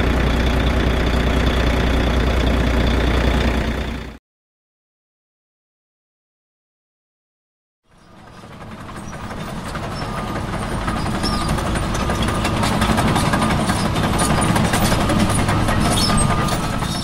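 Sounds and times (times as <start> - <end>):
truck engine rumbling: 0.0 - 4.2, 7.9 - 17.0.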